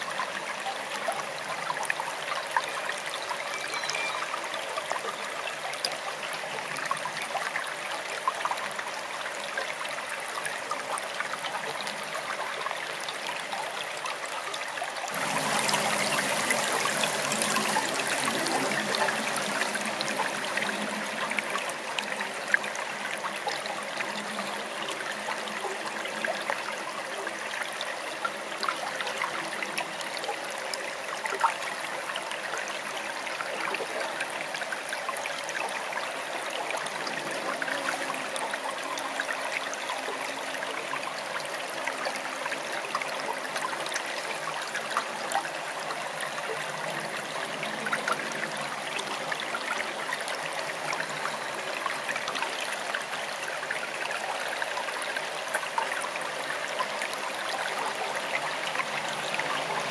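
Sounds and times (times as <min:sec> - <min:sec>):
stream babbling: 0:00.0 - 0:59.9.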